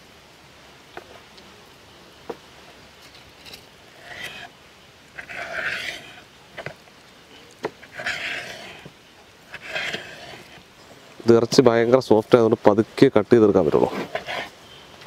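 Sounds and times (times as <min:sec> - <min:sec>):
knife rasping through fish skin: 0:07.8 - 0:08.9, 0:09.5 - 0:10.6.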